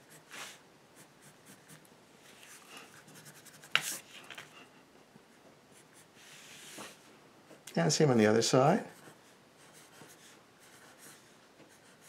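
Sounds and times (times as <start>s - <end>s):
pencil scratching on paper: 0.0s - 1.8s, 2.5s - 4.0s, 8.9s - 12.0s.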